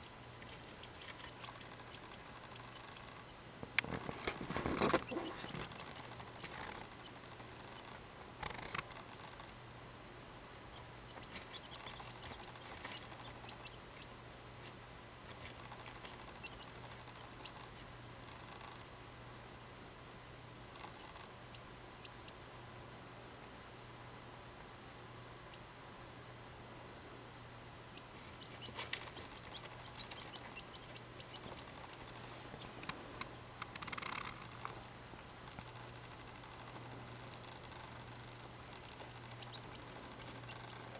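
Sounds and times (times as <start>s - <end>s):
chicks peeping: 0.0s - 9.5s, 10.7s - 18.7s, 20.7s - 22.5s, 27.9s - 33.0s, 35.5s - 40.9s
steady low hum: 0.0s - 40.9s.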